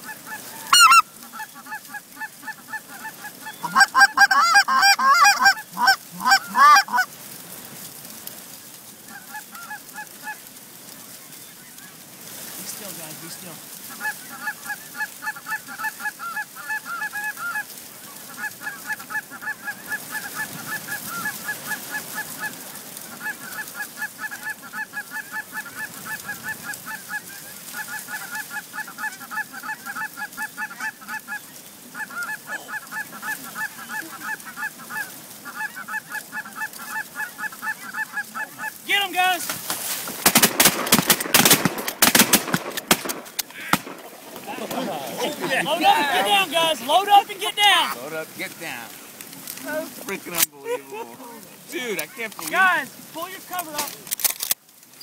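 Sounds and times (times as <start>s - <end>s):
goose honking: 0.0s - 7.1s, 9.0s - 12.0s, 12.7s - 54.0s
shotgun blasts: 40.2s - 44.2s.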